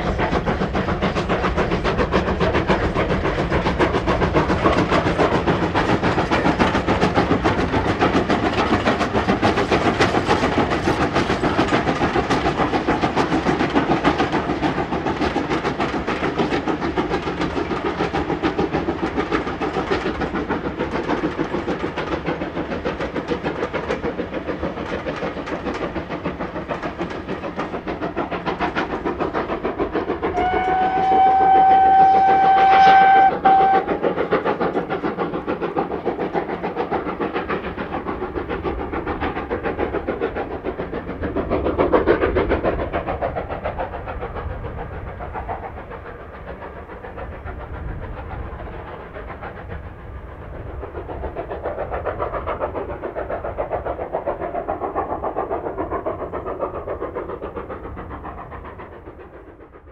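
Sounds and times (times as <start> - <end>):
train running with rhythmic beat: 0.0 - 59.9
steam locomotive whistle: 30.3 - 34.0.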